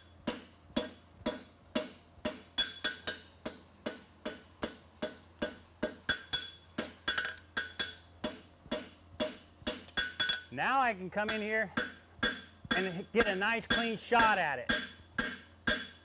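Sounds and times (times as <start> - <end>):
hammer striking metal on anvil: 0.2 - 10.5, 11.2 - 16.0.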